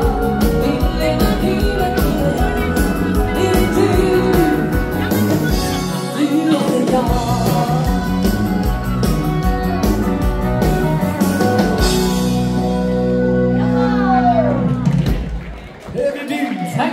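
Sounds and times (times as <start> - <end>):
person singing: 0.0 - 12.3
steady drum beat: 0.0 - 12.8
live band playing rock and roll: 0.0 - 16.0.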